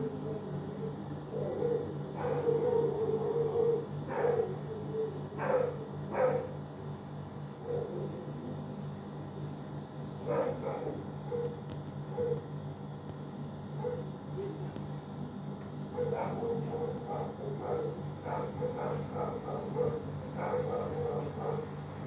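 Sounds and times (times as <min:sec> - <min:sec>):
dog barking: 0:01.3 - 0:06.6, 0:07.6 - 0:08.1, 0:10.2 - 0:12.5, 0:13.8 - 0:14.6, 0:15.9 - 0:21.8.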